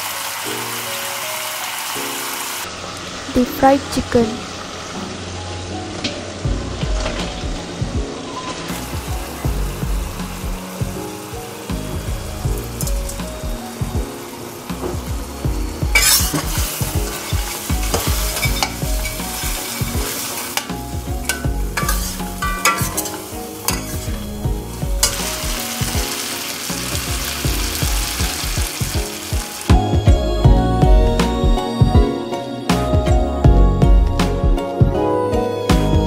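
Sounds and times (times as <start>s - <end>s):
chicken sizzling in sauce: 0.0s - 30.0s
spatula scraping and clinking wok: 16.0s - 24.4s, 25.0s - 27.3s.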